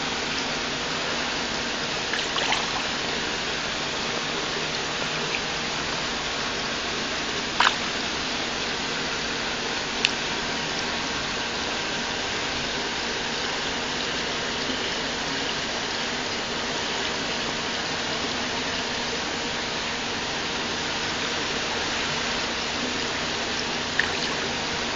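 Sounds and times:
running water rushing: 0.0 - 8.8, 22.9 - 24.9.

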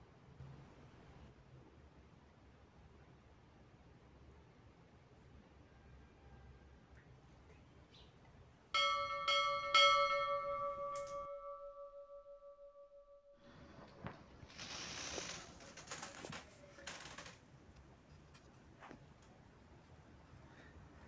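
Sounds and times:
bell-like chime ringing: 8.8 - 13.4
rustling with light clicks: 13.8 - 19.5.

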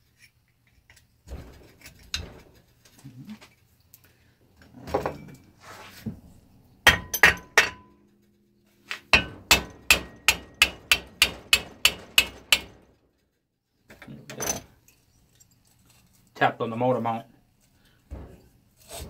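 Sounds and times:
hammer tapping on metal: 6.9 - 8.0, 9.1 - 12.8.

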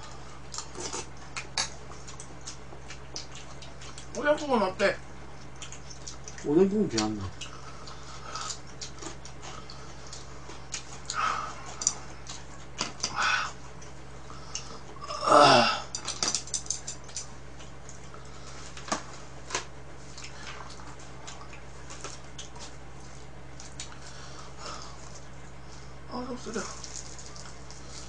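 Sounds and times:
chopsticks clicking against dishes: 15.9 - 17.3.

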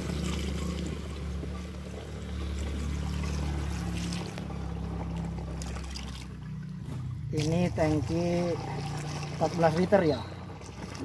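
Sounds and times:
water pouring into tank: 2.5 - 11.0.

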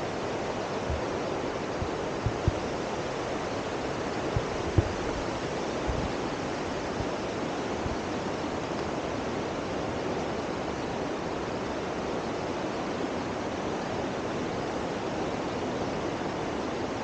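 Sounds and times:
rushing outdoor noise: 0.0 - 17.0
low thumps: 2.2 - 2.6, 4.4 - 5.2.

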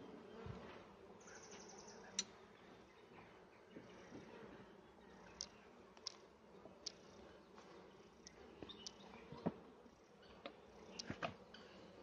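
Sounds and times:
honeybees humming: 0.0 - 12.0
wooden hive clicks and knocks: 10.4 - 11.4.

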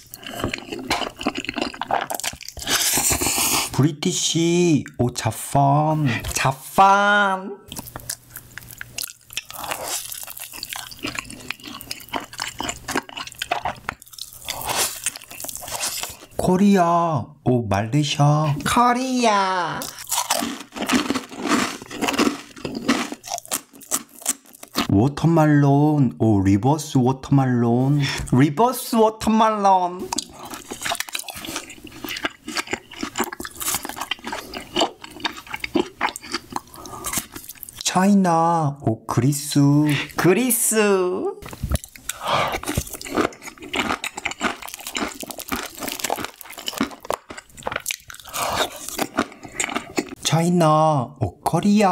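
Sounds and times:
moist chewing with crisp crackles: 0.0 - 3.8, 7.7 - 16.3, 19.8 - 24.9, 30.1 - 37.9, 41.4 - 50.2.

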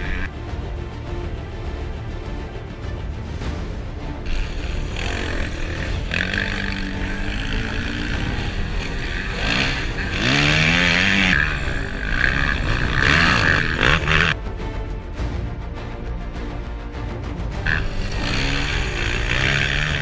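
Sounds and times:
dirt bike engines revving: 0.0 - 0.3, 4.3 - 14.4, 17.6 - 20.0.

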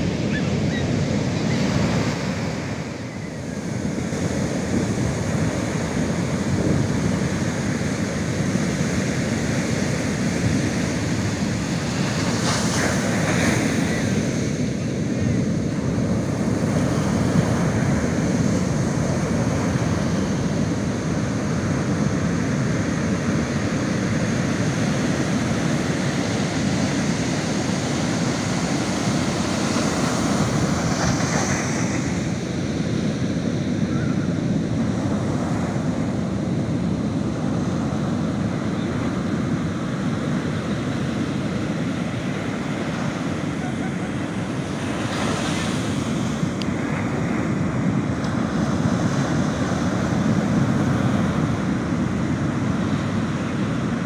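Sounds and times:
ocean surf breaking on beach: 0.0 - 54.0.

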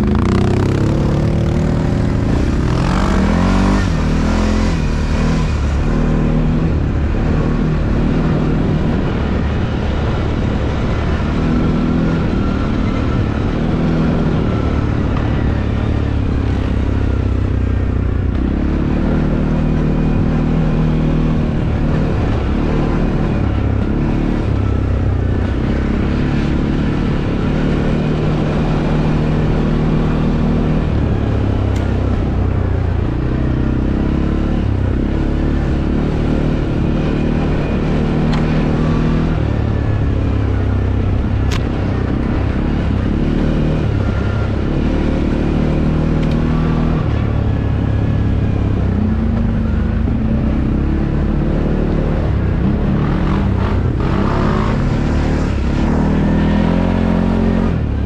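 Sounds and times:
atv engine revving: 0.0 - 58.0.

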